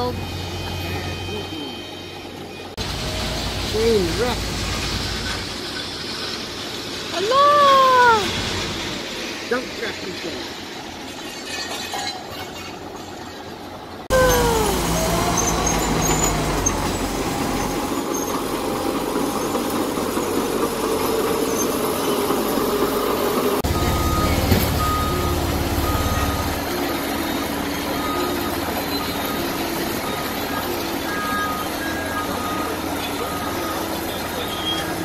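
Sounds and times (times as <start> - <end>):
diesel engines rumbling: 0.0 - 35.0
backup alarm beeping: 23.6 - 26.7.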